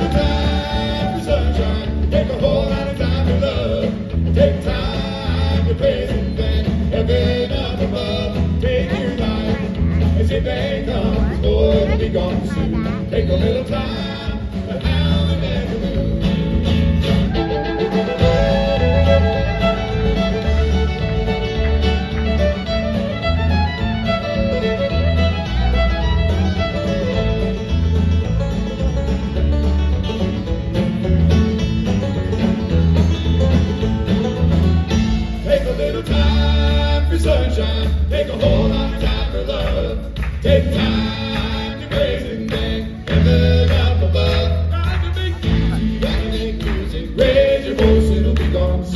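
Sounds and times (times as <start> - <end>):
acoustic guitar: 0.0 - 48.9
banjo: 0.0 - 48.9
drums: 0.0 - 48.9
electric bass: 0.0 - 48.9
bowed fiddle: 17.2 - 35.4.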